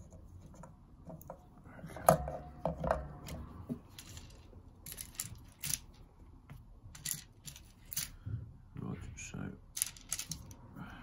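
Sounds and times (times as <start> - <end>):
small metal parts clinking: 3.8 - 6.0, 6.9 - 8.2, 9.7 - 10.6.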